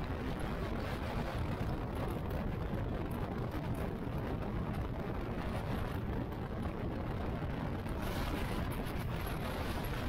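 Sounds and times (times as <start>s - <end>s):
motorcycle engine and tyre drone: 0.0s - 10.0s
wind rushing over microphone: 0.0s - 10.0s.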